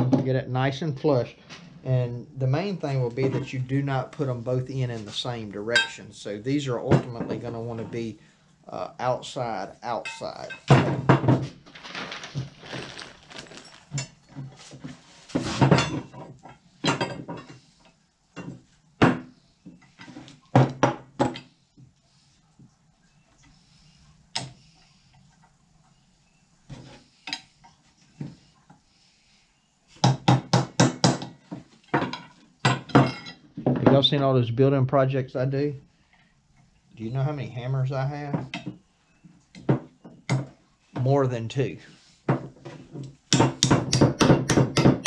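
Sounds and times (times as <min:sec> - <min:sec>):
metal tools clanking: 0:10.0 - 0:11.0.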